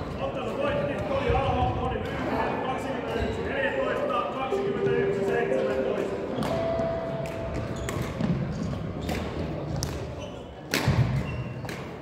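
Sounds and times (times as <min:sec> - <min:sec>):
shoes squeaking on court floor: 0:04.7 - 0:12.0
racket striking shuttlecock: 0:06.3 - 0:10.1, 0:10.7 - 0:12.0.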